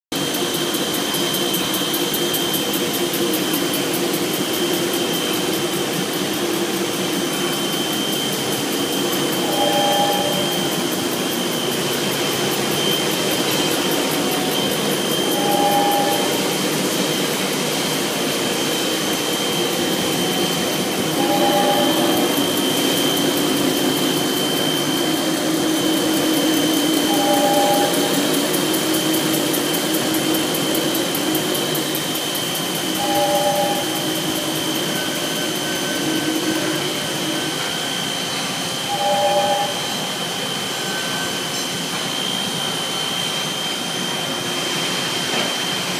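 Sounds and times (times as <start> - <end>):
machine high whine and hum: 0.1 - 45.9
two-note tone: 9.4 - 10.8, 15.2 - 16.6, 21.1 - 22.5, 33.0 - 34.0, 38.9 - 40.0.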